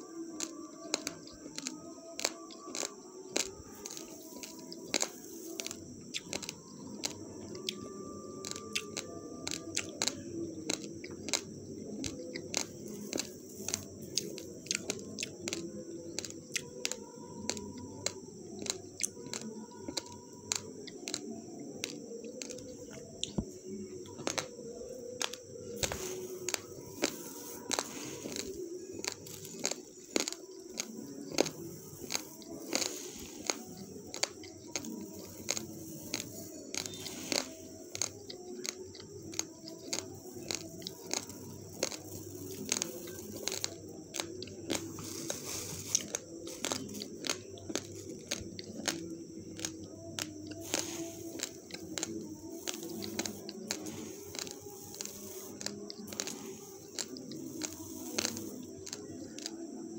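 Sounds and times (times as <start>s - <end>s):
low background noise: 0.0s - 59.9s
rice grains rattling: 25.8s - 47.8s, 50.6s - 59.0s.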